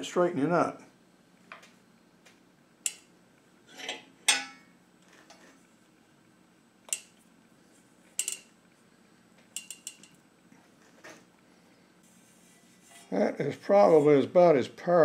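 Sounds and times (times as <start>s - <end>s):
sheet metal clinking: 8.2s - 8.5s, 9.6s - 10.2s.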